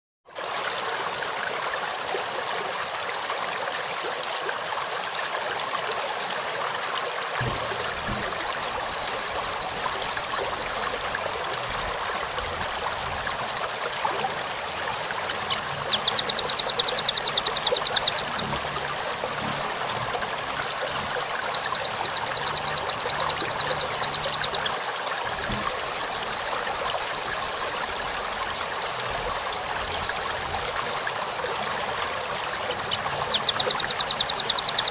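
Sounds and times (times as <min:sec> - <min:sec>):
running stream water: 0:00.3 - 0:34.9
bird calling in rapid trills: 0:07.4 - 0:34.9.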